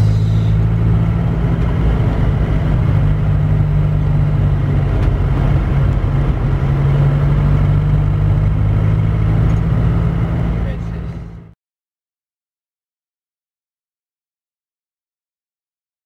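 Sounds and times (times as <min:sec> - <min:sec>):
car engine droning: 0:00.0 - 0:11.6.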